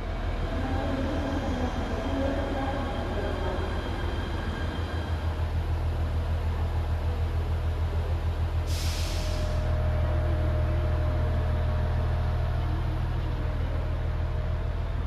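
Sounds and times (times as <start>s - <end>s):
air brake hiss: 8.7s - 9.6s.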